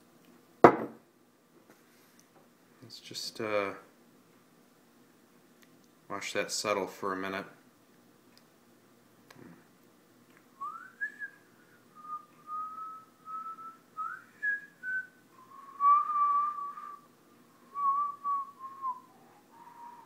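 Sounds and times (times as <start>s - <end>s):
person whistling a slow tune: 10.6s - 20.0s.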